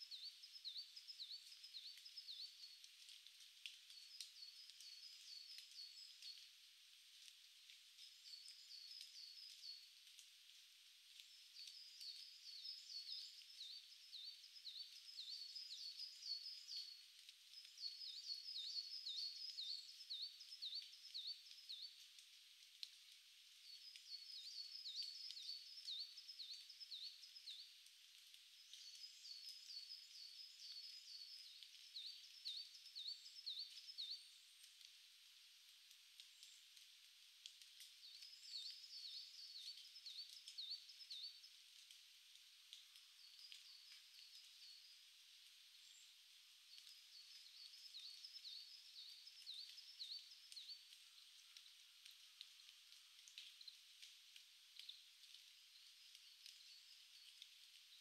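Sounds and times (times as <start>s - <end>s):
songbird singing: 0.0s - 6.6s, 7.9s - 10.0s, 11.2s - 22.1s, 23.5s - 34.9s, 37.8s - 41.9s, 42.7s - 52.5s, 54.8s - 58.0s
faint steady hiss: 0.0s - 58.0s.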